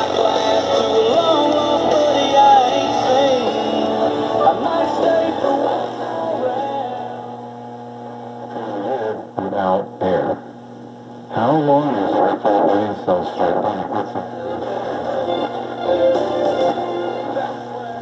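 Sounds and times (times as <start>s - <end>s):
mains hum: 0.0s - 18.0s
radio broadcast through speaker: 8.0s - 10.6s, 11.3s - 16.2s.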